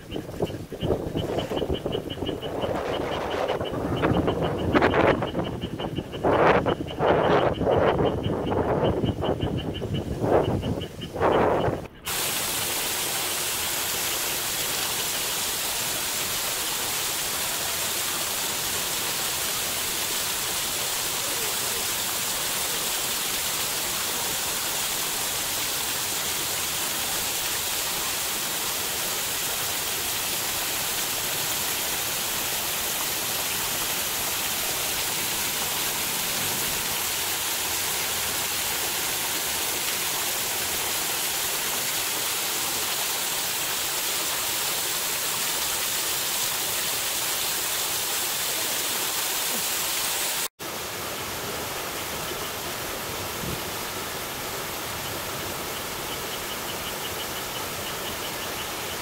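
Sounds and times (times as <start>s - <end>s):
water falling onto rocks: 12.1s - 50.5s.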